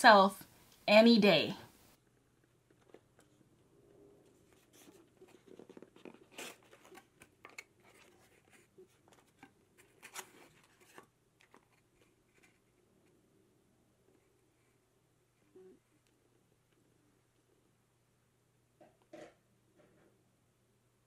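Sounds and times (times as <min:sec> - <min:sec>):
cardboard box opening: 0:04.6 - 0:11.8.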